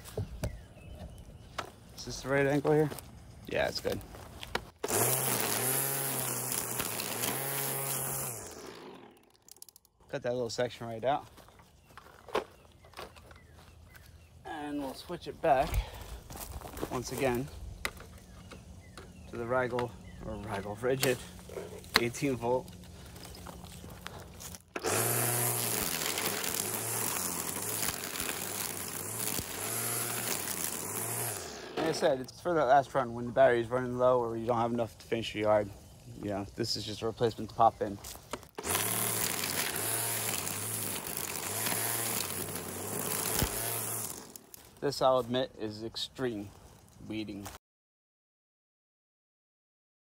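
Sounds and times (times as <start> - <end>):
string trimmer buzzing: 4.8 - 9.9, 17.2 - 32.3, 38.3 - 44.7.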